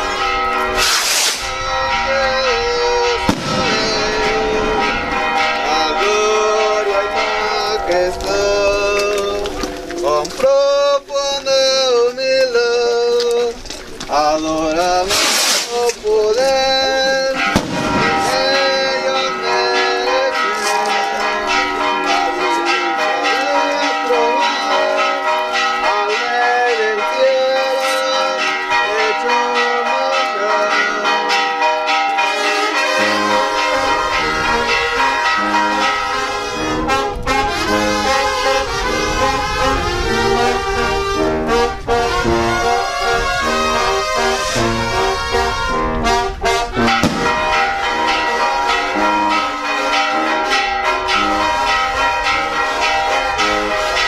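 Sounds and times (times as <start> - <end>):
brass band music: 0.0 - 10.4, 14.1 - 31.4, 32.1 - 54.0
hissing burst: 0.8 - 1.5, 15.1 - 15.8.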